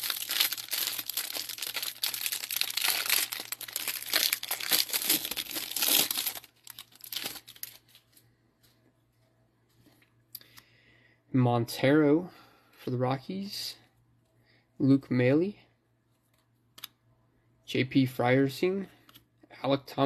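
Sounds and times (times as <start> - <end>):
plastic wrapper crinkling and tearing: 0.0 - 8.2.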